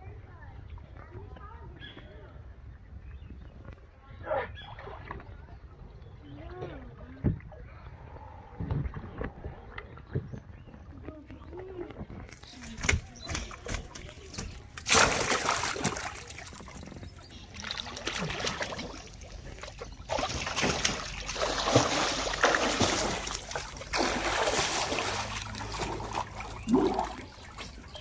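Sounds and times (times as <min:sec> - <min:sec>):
water trickling: 0:10.8 - 0:28.0
fish splashing into water: 0:12.3 - 0:28.0
water churning in surges: 0:12.7 - 0:28.0.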